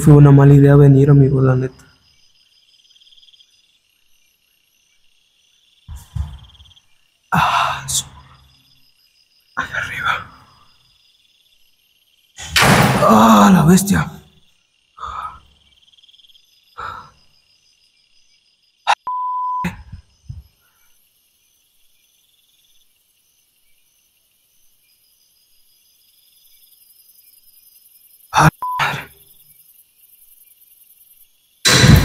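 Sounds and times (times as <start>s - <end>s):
crickets chirping: 0.0s - 32.0s
sharp click: 12.4s - 13.0s
electronic beeps: 18.9s - 19.7s, 28.4s - 29.1s.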